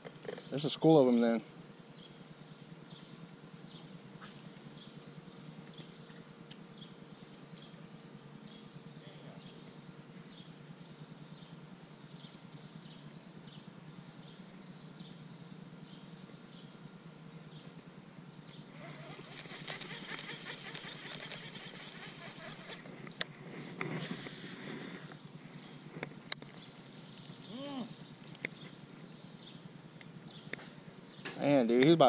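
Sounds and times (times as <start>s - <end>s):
faint high animal chirps: 27.4s - 28.4s.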